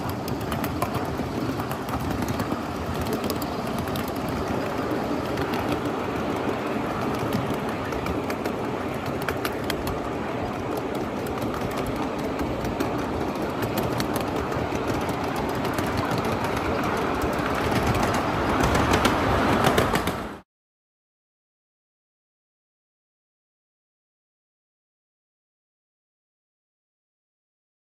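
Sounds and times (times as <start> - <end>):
miniature train rumbling: 0.0 - 20.4
wheels clicking on rails: 0.0 - 20.4.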